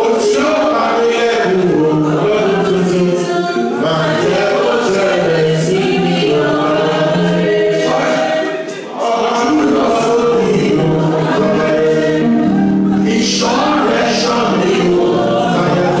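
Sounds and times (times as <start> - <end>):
choir singing gospel song: 0.0 - 16.0.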